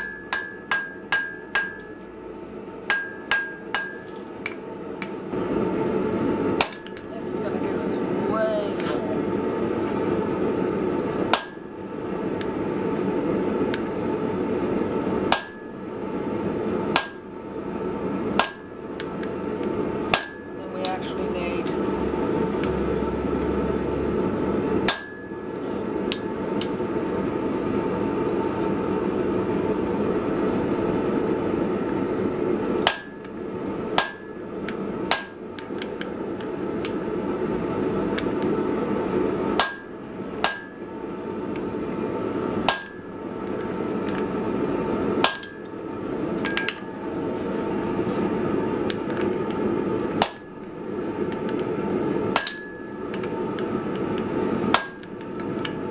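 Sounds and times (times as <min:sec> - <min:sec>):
hammer striking metal on anvil: 0:00.0 - 0:02.1, 0:02.9 - 0:04.2, 0:06.6 - 0:07.1, 0:11.3 - 0:11.6, 0:15.3 - 0:15.7, 0:16.9 - 0:17.2, 0:18.4 - 0:19.3, 0:20.1 - 0:21.0, 0:24.9 - 0:25.4, 0:32.8 - 0:33.3, 0:34.0 - 0:34.4, 0:35.1 - 0:35.8, 0:39.6 - 0:40.8, 0:42.7 - 0:43.1, 0:45.2 - 0:45.8, 0:50.2 - 0:50.5, 0:52.4 - 0:53.3, 0:54.7 - 0:55.8.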